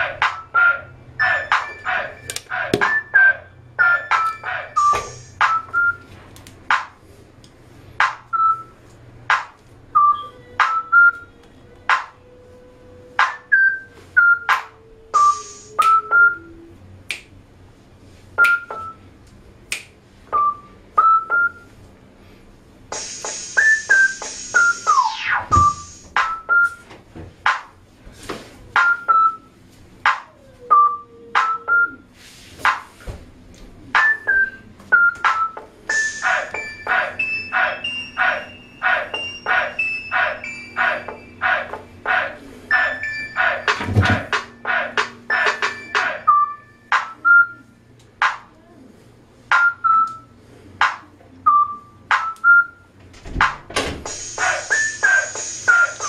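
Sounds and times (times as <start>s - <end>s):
sparse electronic beat: 35.2s - 46.3s, 53.4s - 56.0s.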